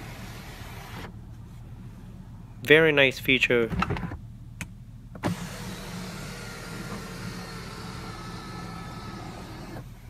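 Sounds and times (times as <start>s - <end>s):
electric motor whirring: 5.2s - 9.9s.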